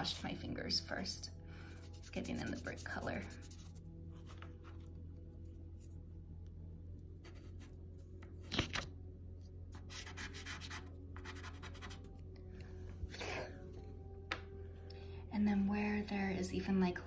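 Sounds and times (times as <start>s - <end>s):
low steady hum: 0.0s - 17.0s
pastel scratching on paper: 1.7s - 4.8s, 9.8s - 12.1s.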